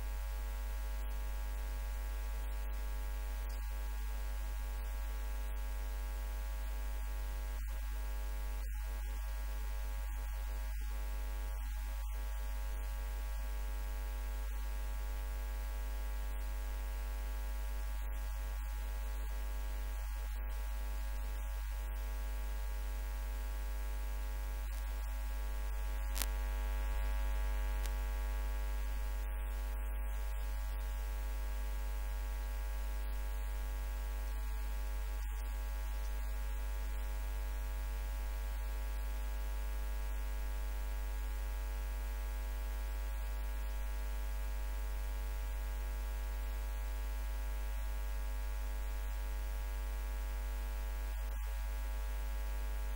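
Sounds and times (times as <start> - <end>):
electrical mains hum: 0.0 - 52.9.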